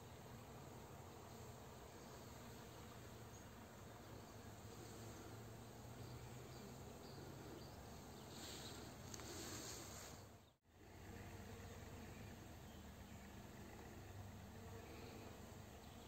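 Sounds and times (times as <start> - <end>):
honeybees buzzing: 0.0 - 16.0
soft hiss: 8.0 - 13.8.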